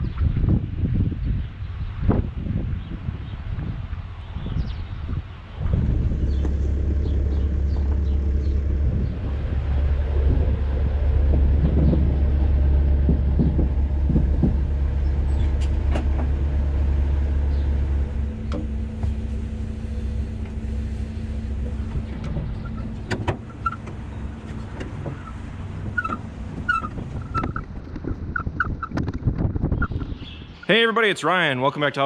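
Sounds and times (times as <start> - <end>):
steady low rumble: 0.0 - 30.7
birds chirping: 4.2 - 31.1
metal knocks and clanks: 5.6 - 19.6, 21.3 - 29.2.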